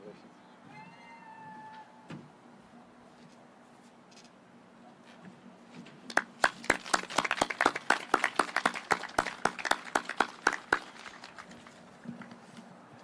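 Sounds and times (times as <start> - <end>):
close sharp claps: 6.1 - 12.4
group clapping: 6.1 - 12.4.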